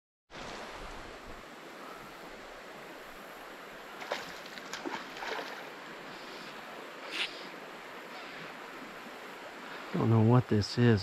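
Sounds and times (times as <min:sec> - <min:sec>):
flowing creek: 0:00.3 - 0:11.0
fish splashing at surface: 0:04.0 - 0:05.7.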